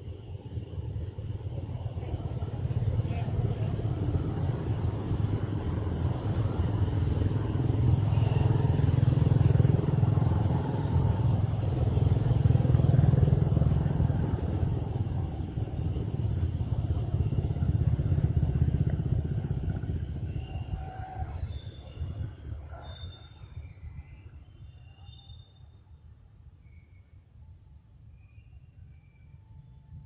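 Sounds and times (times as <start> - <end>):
motorcycle engine rumbling: 1.4 - 22.7.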